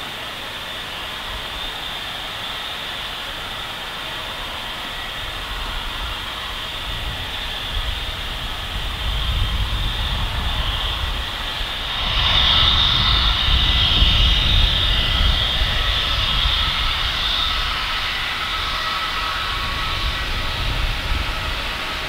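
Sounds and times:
jet engines whining and rumbling: 0:00.0 - 0:22.0.

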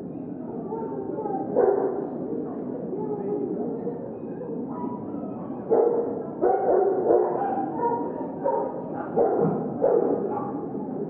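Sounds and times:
dog barking: 0:05.6 - 0:10.6.

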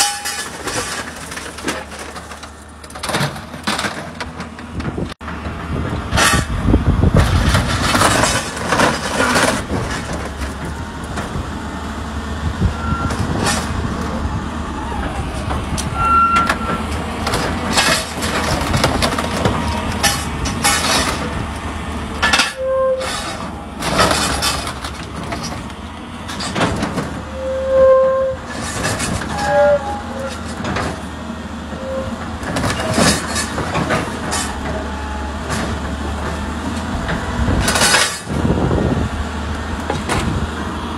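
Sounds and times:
metal squeals: 0:00.0 - 0:01.0, 0:12.6 - 0:17.0, 0:22.2 - 0:24.8, 0:26.4 - 0:31.0, 0:31.6 - 0:35.7
metal crunching and banging: 0:00.0 - 0:27.5, 0:28.4 - 0:39.2
excavator engine hum: 0:00.0 - 0:40.9.

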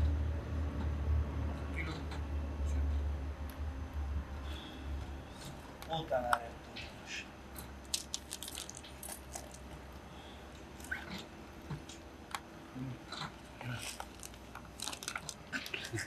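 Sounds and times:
steady low hum: 0:00.0 - 0:16.0
bag rustling and clicking: 0:07.9 - 0:09.6, 0:13.8 - 0:15.8.

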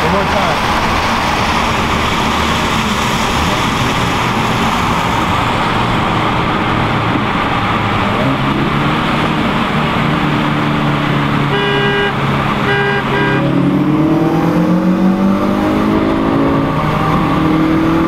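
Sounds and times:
car engine accelerating: 0:00.0 - 0:18.0
road noise: 0:00.0 - 0:18.0
short beep: 0:11.5 - 0:13.4.

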